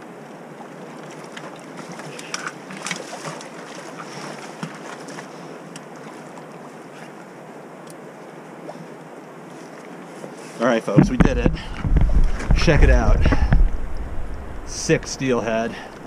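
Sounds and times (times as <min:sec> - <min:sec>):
water noise: 0:00.0 - 0:16.0
wind: 0:00.0 - 0:16.0
sharp clicks and knocks: 0:11.0 - 0:14.7.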